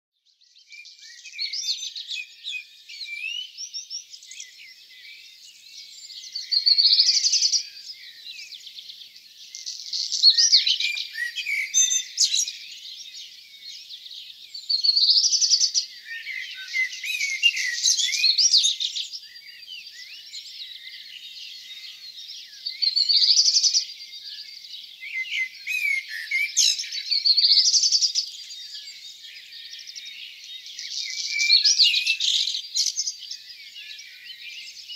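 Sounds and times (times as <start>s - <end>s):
songbirds singing: 0.1s - 34.9s.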